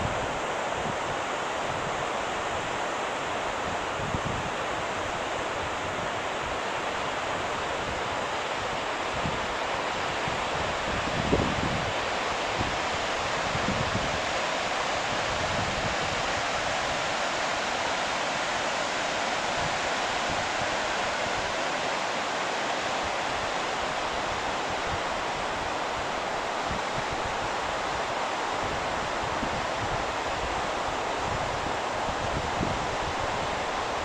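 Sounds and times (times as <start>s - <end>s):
river rushing over rocks: 0.0s - 34.0s
wind buffeting microphone: 31.2s - 33.5s.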